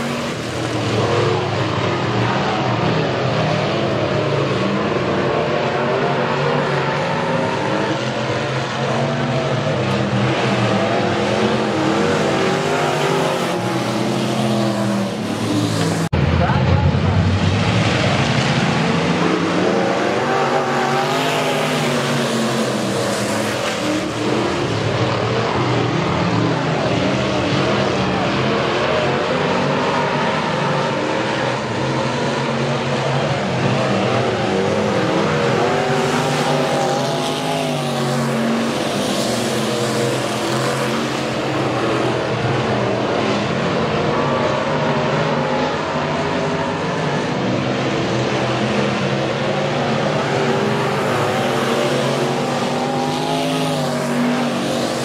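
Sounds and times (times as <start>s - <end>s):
race car engines: 0.0s - 55.0s.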